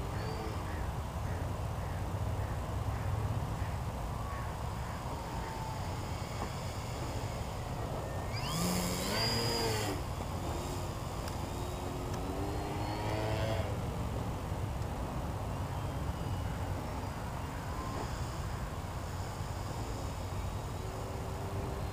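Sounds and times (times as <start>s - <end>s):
model plane motor whining: 4.7s - 13.8s, 16.2s - 21.9s.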